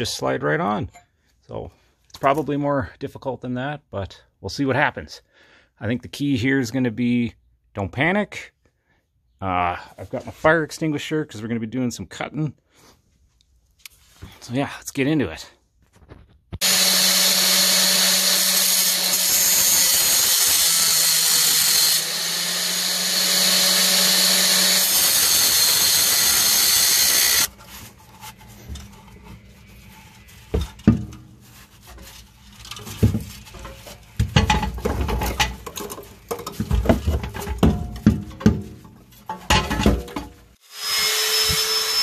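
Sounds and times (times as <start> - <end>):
angle grinder cutting steel pipe: 16.6 - 27.5, 40.6 - 42.0
knocks and clunks: 30.4 - 32.0, 32.6 - 40.5.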